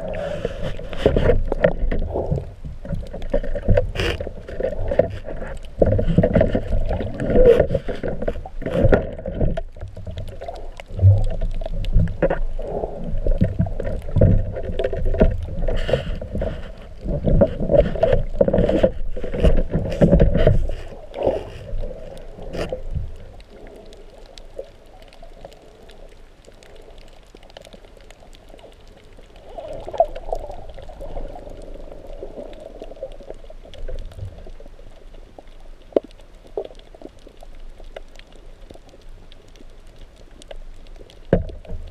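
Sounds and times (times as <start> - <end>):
faint clicks: 0.0 - 41.9
underwater water rushing: 0.0 - 41.9.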